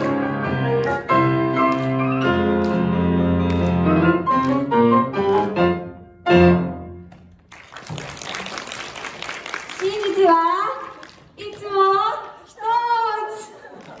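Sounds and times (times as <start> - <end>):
grand piano played four hands: 0.0 - 7.0.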